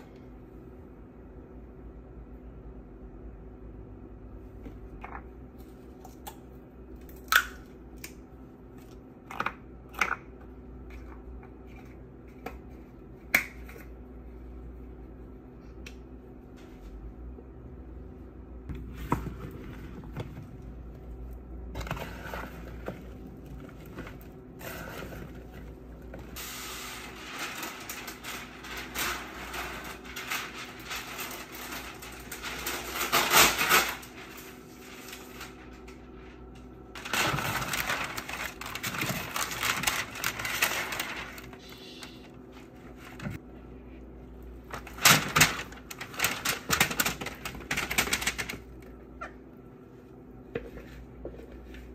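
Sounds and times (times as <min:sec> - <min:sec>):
low steady hum: 0:00.0 - 0:51.9
parchment paper rustling: 0:18.7 - 0:43.4, 0:44.6 - 0:48.8.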